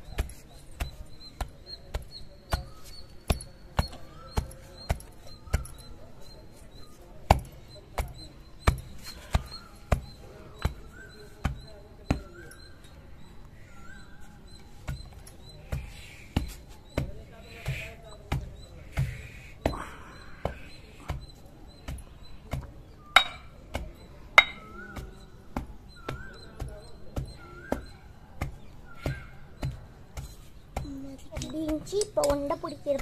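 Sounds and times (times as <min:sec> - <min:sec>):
wooden pestle pounding in stone mortar: 0:20.5 - 0:33.0.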